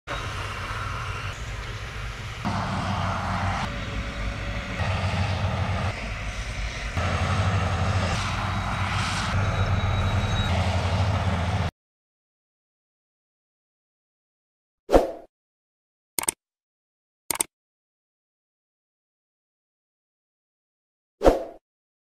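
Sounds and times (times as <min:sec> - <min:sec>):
heavy diesel engines rumbling: 0:00.1 - 0:11.7.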